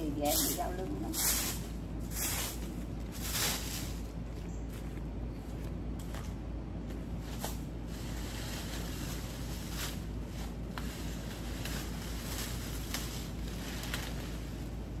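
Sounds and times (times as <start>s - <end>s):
branches crackling and rustling: 0.0s - 15.0s
steady low rumble: 0.0s - 15.0s.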